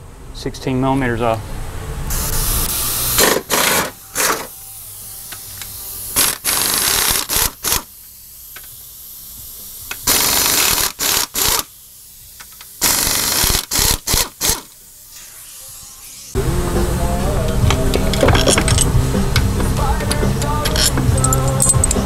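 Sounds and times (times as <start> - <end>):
air ratchet running: 2.1 - 14.8, 17.4 - 22.0
air ratchet exhaust hissing: 2.1 - 22.0.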